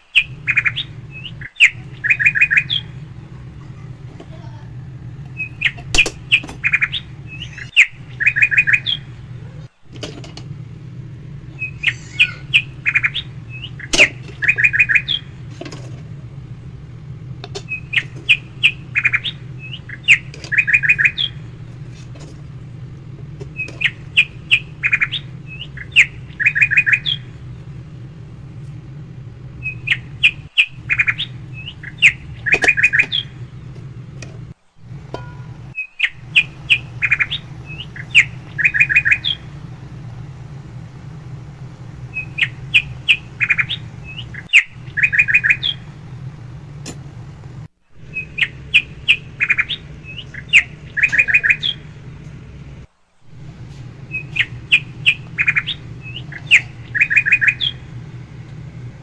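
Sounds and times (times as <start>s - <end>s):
bird chirping and trilling: 0.0s - 9.8s, 11.4s - 15.5s, 17.5s - 22.2s, 23.4s - 28.0s, 29.4s - 33.6s, 34.9s - 46.0s, 48.0s - 51.9s, 54.1s - 58.3s
steady low hum: 0.0s - 59.0s.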